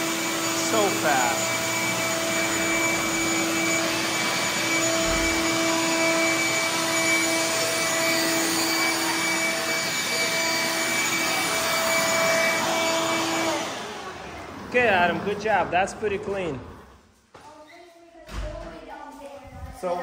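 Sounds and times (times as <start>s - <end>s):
vacuum cleaner running: 0.0s - 17.0s.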